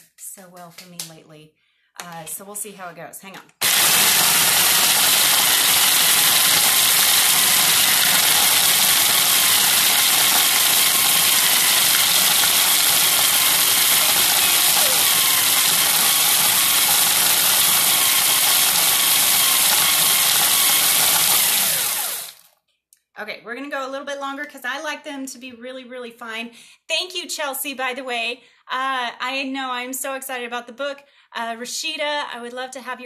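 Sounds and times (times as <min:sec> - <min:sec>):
food processor grinding bread: 0:03.6 - 0:22.5.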